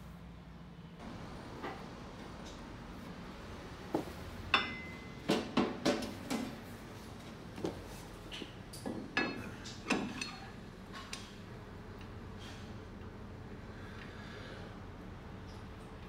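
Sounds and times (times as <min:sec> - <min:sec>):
metal tools knocking on steel: 0:04.5 - 0:06.5.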